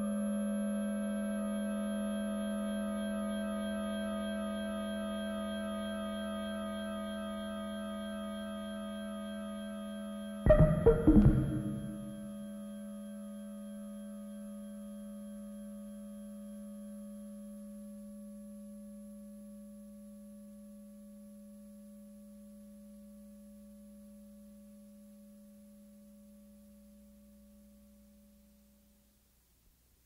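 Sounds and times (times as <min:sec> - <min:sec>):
sustained low electronic tone: 0:10.5 - 0:12.2.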